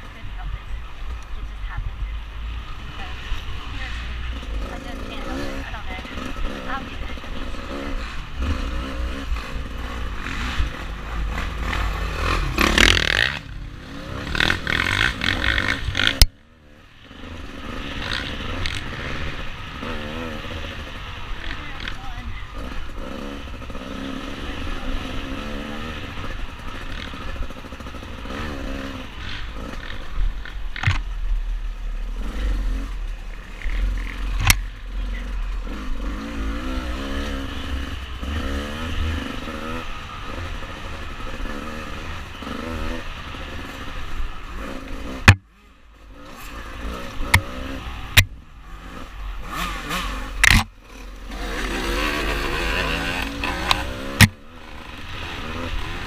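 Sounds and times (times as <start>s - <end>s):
dirt bike engine revving: 2.6s - 56.0s.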